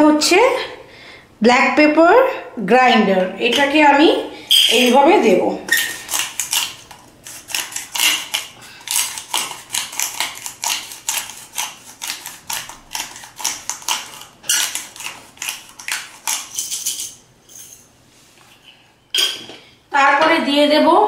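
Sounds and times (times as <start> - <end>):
pepper grinder grinding: 4.5 - 17.8.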